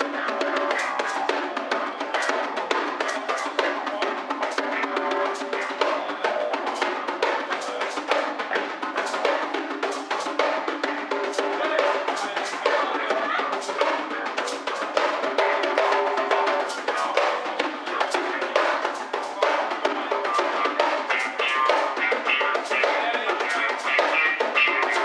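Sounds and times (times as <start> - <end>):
fast drumming and percussion: 0.0 - 25.0.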